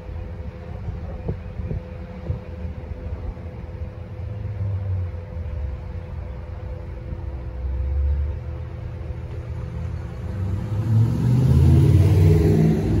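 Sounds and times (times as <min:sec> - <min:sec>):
car engine rumble accelerating: 0:00.0 - 0:13.0.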